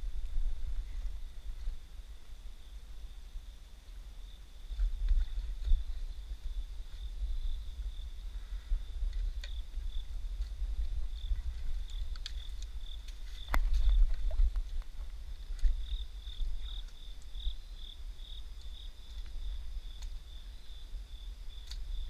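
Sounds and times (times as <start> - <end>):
low rumble: 0.0 - 16.7
crickets chirping: 0.0 - 22.0.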